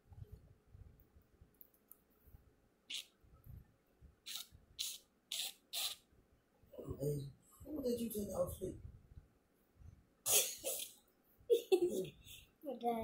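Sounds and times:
spray bottle hissing: 4.3 - 6.0.

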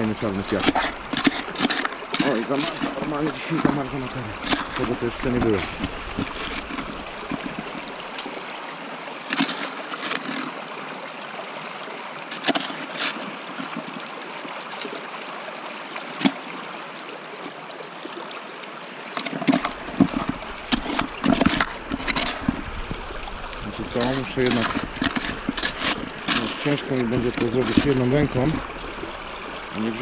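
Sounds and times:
hand scoop knocking and scraping: 0.0 - 7.9, 9.3 - 10.5, 12.3 - 13.9, 19.2 - 30.0
water rushing through sluice box: 0.0 - 30.0.

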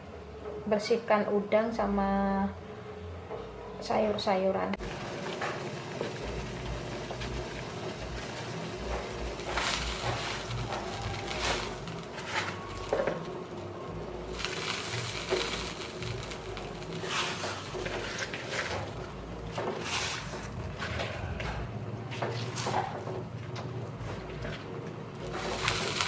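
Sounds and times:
leaves splashing into pot of water: 25.2 - 26.0.

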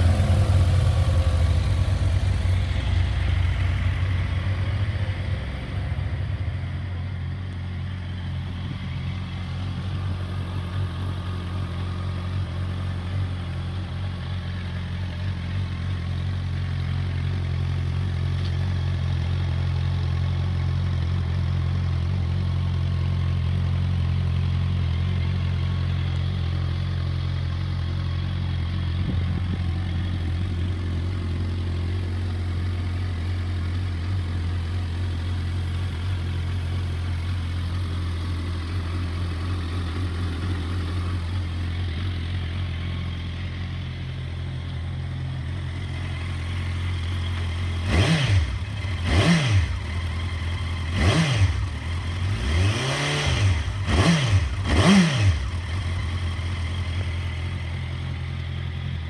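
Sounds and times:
motorcycle engine idling: 0.0 - 59.0
engine revs blipped: 47.8 - 49.9, 50.9 - 55.6.

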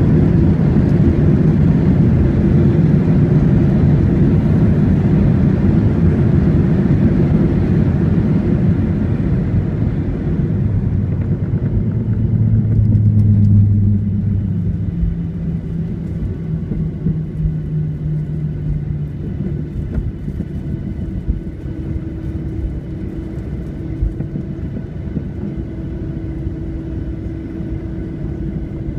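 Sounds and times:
low jet engine drone: 0.0 - 28.9
wheels rumbling on runway: 0.0 - 28.9.

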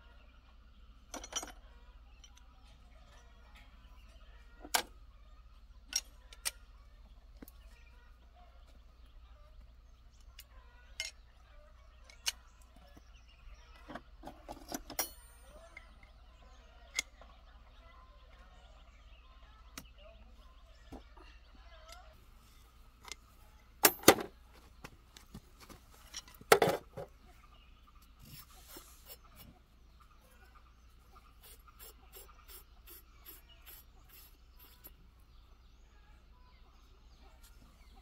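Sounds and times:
metal tool ringing: 15.0 - 15.6.

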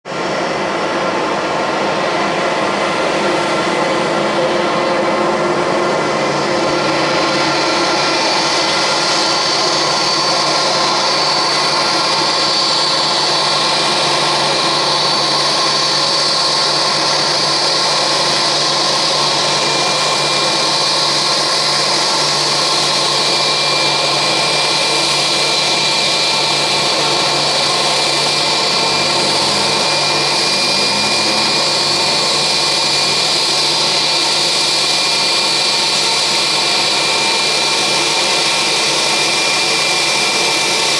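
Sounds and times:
jet engines idling whine: 0.1 - 40.9.

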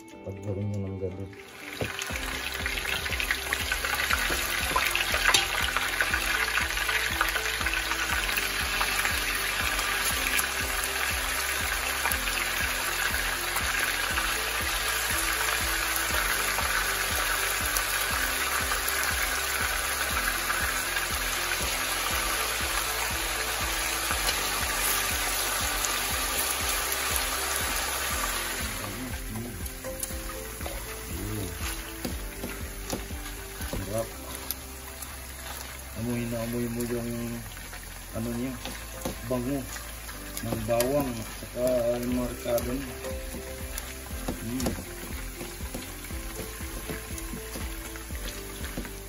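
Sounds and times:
background music with steady beat: 0.0 - 49.0
meat sizzling in a frying pan: 1.4 - 49.0.

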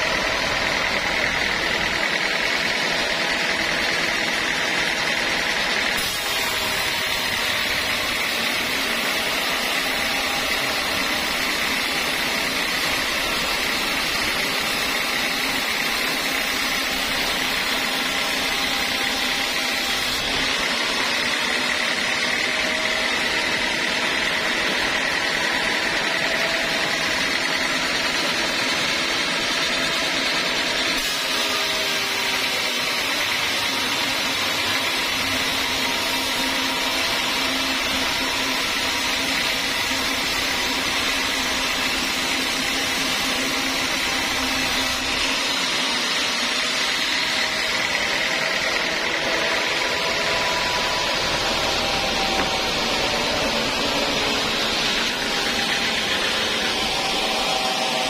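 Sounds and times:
sawmill machinery running: 0.0 - 58.0.

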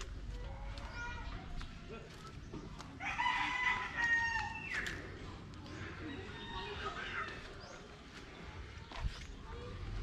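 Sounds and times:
rooster crowing: 3.0 - 4.8, 6.0 - 7.3.

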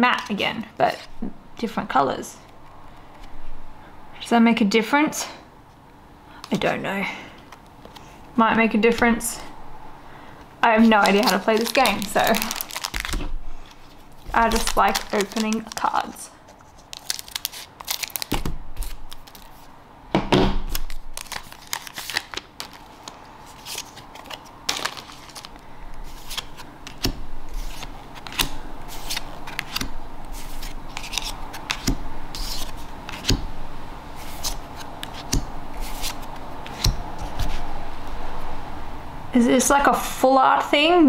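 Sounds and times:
scissors snipping wrapper: 10.8 - 13.2, 14.3 - 16.2, 16.8 - 19.5
cards flicked with snaps and rustles: 26.2 - 33.5, 34.2 - 37.6.

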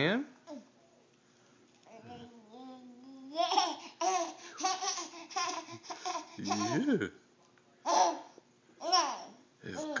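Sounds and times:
baby laughing and babbling: 1.9 - 7.0, 7.8 - 10.0.

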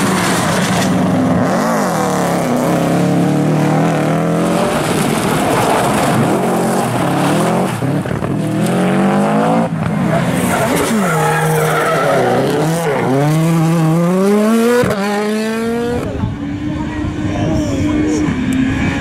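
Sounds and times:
rally car engines revving hard: 0.0 - 19.0
tyres skidding and squealing: 9.8 - 14.9
car braking: 9.8 - 15.0.

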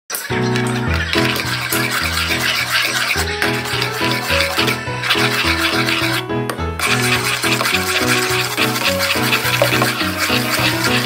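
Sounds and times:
instrumental music with beat: 3.2 - 11.0.

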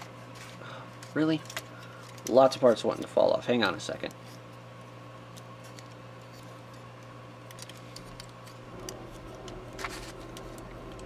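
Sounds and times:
plastic parts clicking: 7.5 - 8.6
low hum: 8.0 - 11.0.

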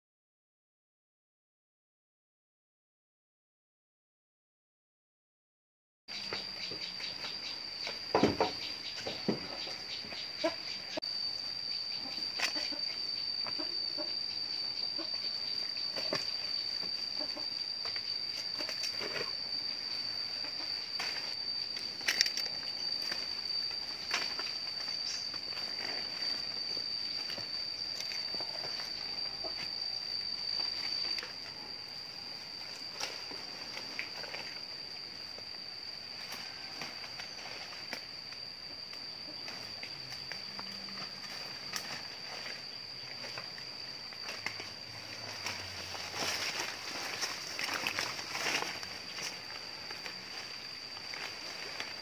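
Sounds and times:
insects droning: 6.1 - 52.0
leaves rustling and snapping: 44.2 - 52.0.

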